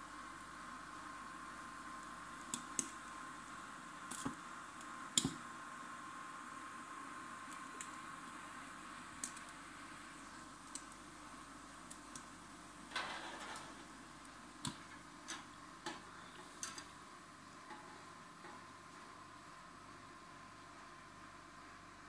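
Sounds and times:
faint steady hum: 0.0 - 22.0
metal grate scraping: 12.9 - 13.9, 17.6 - 18.6.

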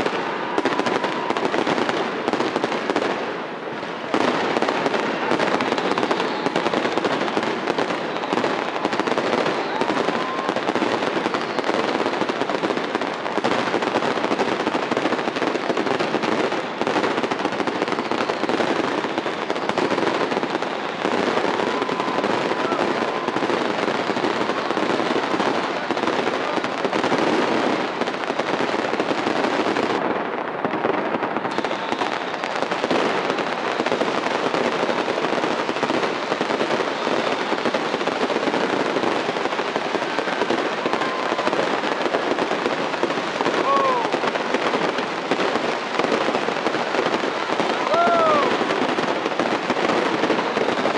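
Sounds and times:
firework whistle: 0.0 - 3.2, 4.1 - 13.8, 14.9 - 27.8, 31.4 - 37.2, 43.1 - 44.3, 47.7 - 48.9
fireworks crackling and banging: 0.0 - 50.9.

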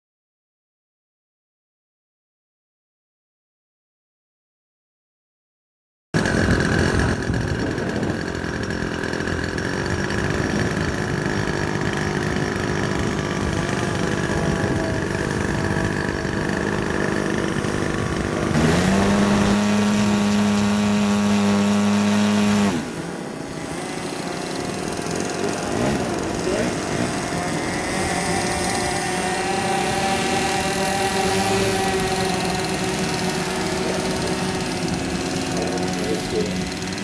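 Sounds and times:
model airplane engine running: 6.2 - 37.0.

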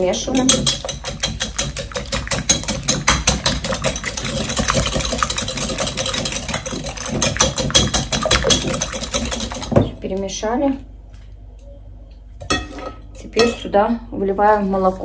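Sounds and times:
whisk clicking against bowl: 0.1 - 9.9.

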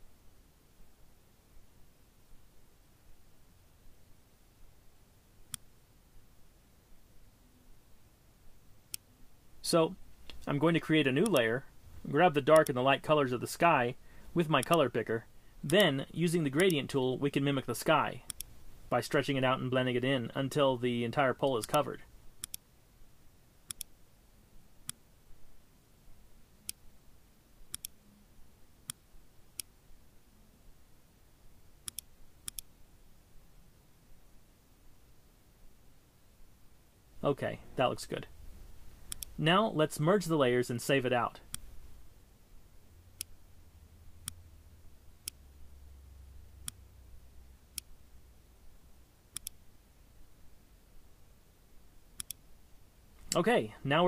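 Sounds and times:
faint low hum: 0.0 - 54.0
computer mouse clicks: 11.2 - 11.5, 18.3 - 18.5, 22.4 - 22.6, 23.7 - 23.9, 27.7 - 28.0, 31.8 - 32.7, 39.1 - 39.4, 49.3 - 49.6, 52.2 - 52.4.

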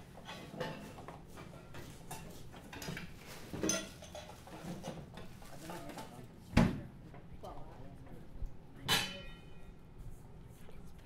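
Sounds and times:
clinks of plates and utensils: 0.2 - 5.0, 8.9 - 9.8.

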